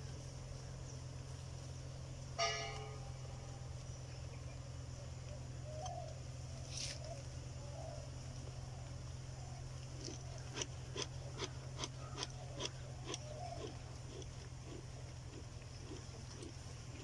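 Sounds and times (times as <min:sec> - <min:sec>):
high insect chirr: 0:00.0 - 0:17.0
steady low hum: 0:00.0 - 0:17.0
bell-like metallic ring: 0:02.4 - 0:03.2.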